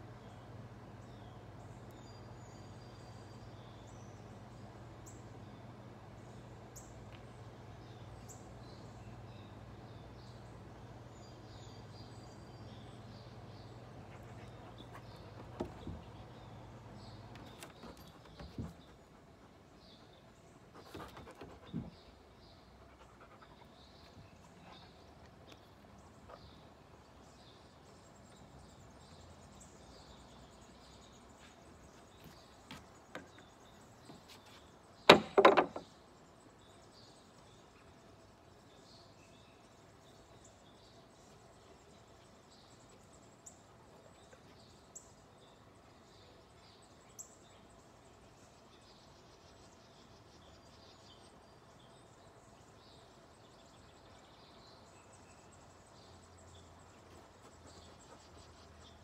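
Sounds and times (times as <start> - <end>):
burst of knocks: 35.1 - 35.8.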